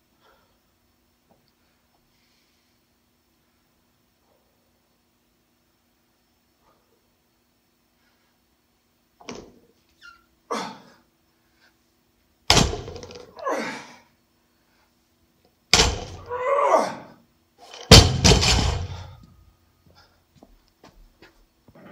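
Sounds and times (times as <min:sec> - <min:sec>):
barbell thudding on gym floor: 0:12.5 - 0:13.3, 0:15.8 - 0:16.3, 0:17.7 - 0:19.3.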